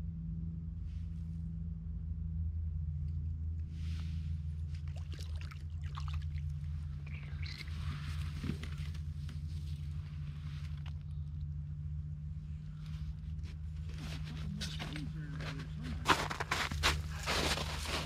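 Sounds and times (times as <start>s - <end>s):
steady low hum: 0.0s - 18.0s
water splashing and trickling: 4.7s - 8.0s
scraping and rustling on snow: 7.6s - 10.8s, 12.9s - 18.0s.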